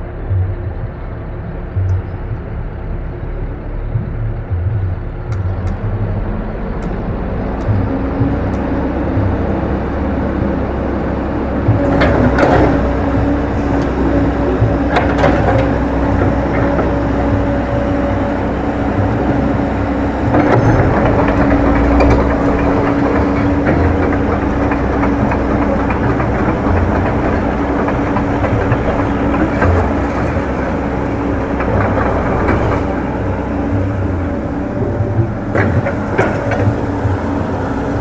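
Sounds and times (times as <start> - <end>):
excavator diesel engine humming: 0.0 - 38.0
steel tracks clanking: 0.0 - 38.0.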